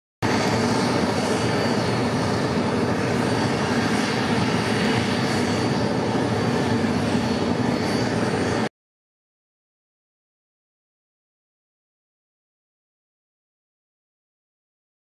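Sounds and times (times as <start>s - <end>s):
jet turbine running: 0.2s - 8.7s.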